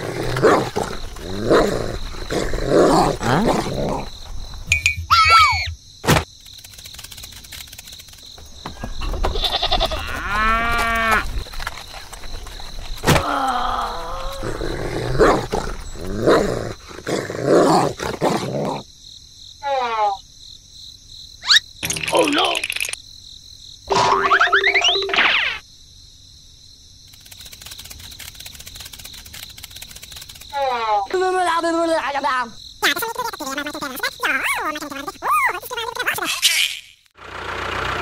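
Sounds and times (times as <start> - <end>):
animal call sound effects: 5.0 - 5.8
sharp clicks: 6.3 - 8.3, 27.1 - 30.6.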